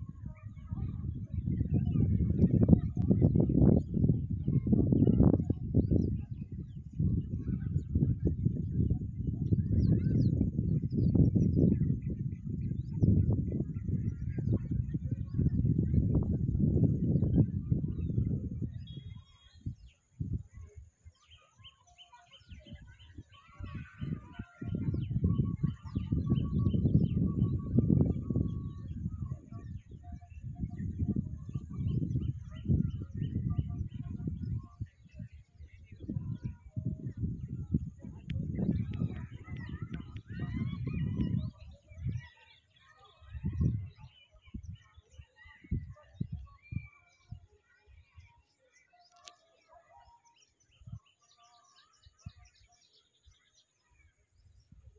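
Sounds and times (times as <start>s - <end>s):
birds chirping: 17.2s - 46.9s.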